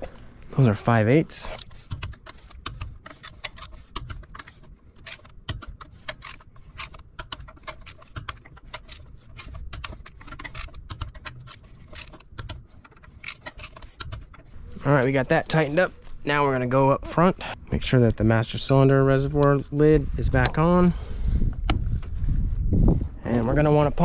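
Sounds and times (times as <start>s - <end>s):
torque wrench clicking: 1.5s - 14.5s.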